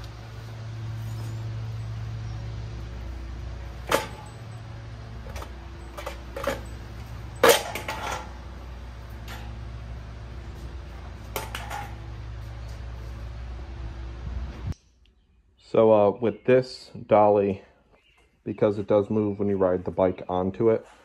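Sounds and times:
low hum: 0.0 - 15.3
metal dolly clunks and knocks: 3.5 - 12.7.

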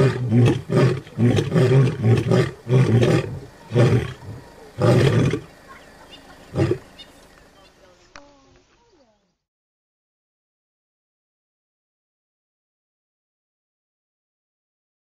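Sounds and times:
lion roaring: 0.0 - 5.5, 6.5 - 6.9.

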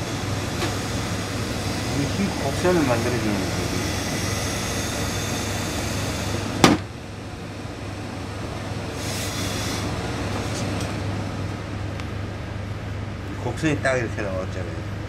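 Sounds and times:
steam iron hissing: 0.0 - 6.7, 8.9 - 10.7
low machine hum: 0.0 - 15.0.

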